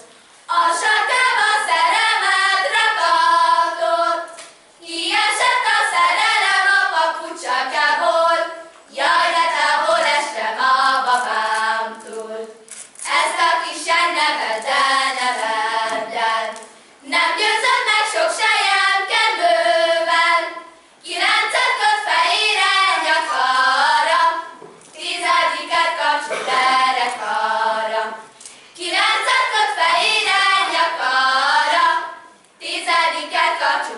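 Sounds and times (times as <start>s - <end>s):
girls singing without instruments: 0.0s - 33.9s.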